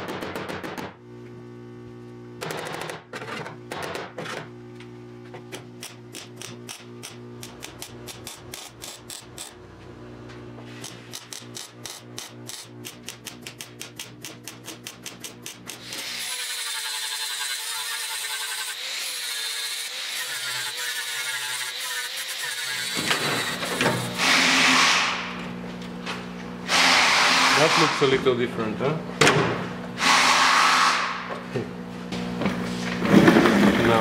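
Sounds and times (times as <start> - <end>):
welder hum: 4.4 - 28.8
angle grinder grinding metal: 10.7 - 25.3, 26.7 - 28.2
welder arc bursts: 26.7 - 28.2.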